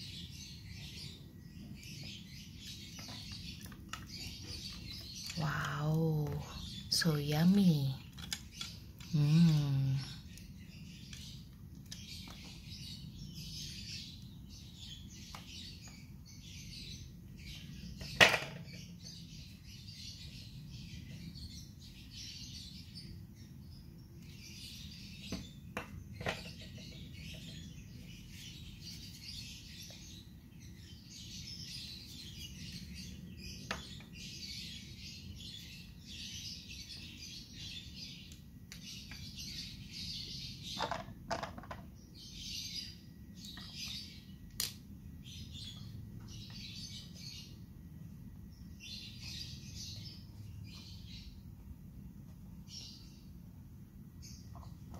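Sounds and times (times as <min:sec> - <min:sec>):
birds chirping: 0:00.0 - 0:54.9
plastic toys knocking on tile: 0:18.0 - 0:18.7, 0:40.8 - 0:41.9.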